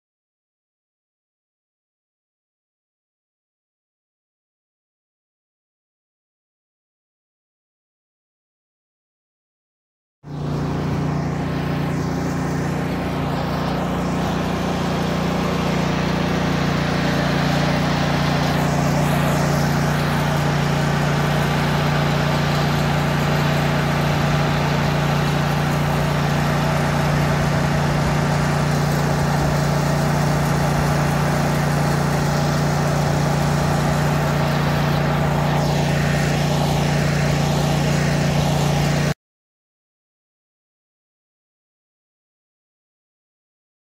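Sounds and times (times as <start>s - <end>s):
truck engine running: 10.3s - 39.1s.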